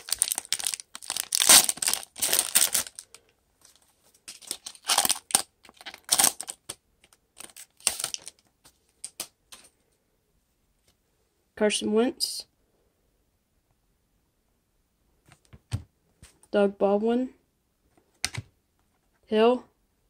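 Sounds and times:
foil wrapper tearing and crinkling: 0.0 - 3.2, 4.3 - 6.8, 7.4 - 8.4.

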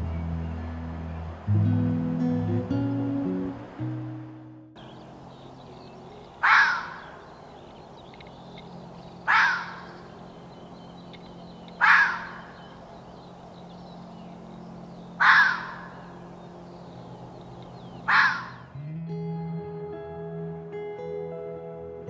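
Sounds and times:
harsh animal call: 6.4 - 7.2, 11.8 - 12.8, 18.0 - 18.7.

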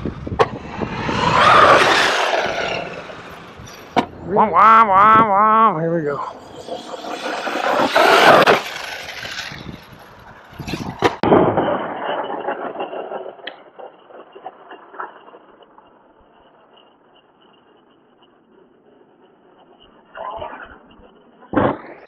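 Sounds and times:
rc truck motor and tyres on dirt: 0.0 - 22.0.

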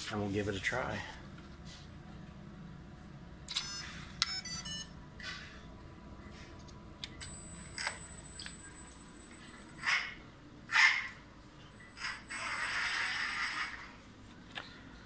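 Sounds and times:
electronic beeps: 3.5 - 5.0
thin high whine: 7.1 - 14.2.

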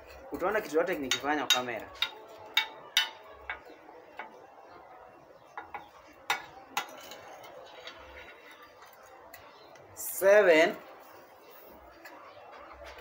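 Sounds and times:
metal spoon clinking on glass: 1.0 - 3.6, 5.6 - 8.9.

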